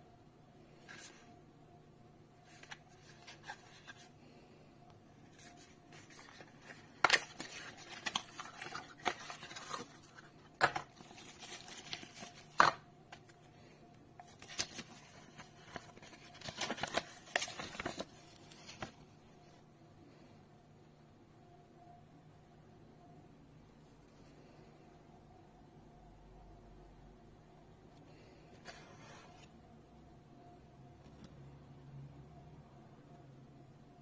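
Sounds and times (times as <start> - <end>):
cardboard and paper rustling: 2.4 - 4.1, 5.2 - 13.4, 14.2 - 19.0.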